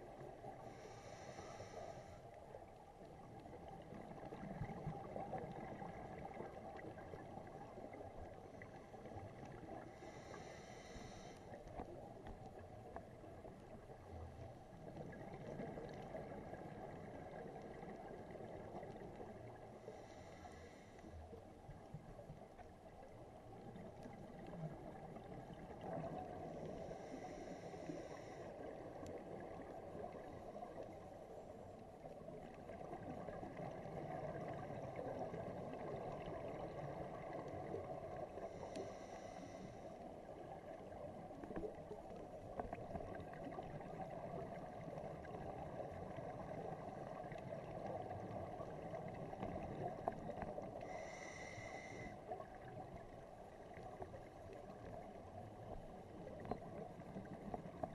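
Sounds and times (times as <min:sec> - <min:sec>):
underwater rush and gurgle: 0:00.0 - 0:57.9
diver's regulator hiss: 0:00.6 - 0:02.3, 0:09.9 - 0:11.6, 0:19.9 - 0:21.1, 0:26.6 - 0:28.5, 0:38.4 - 0:39.9, 0:50.8 - 0:52.2.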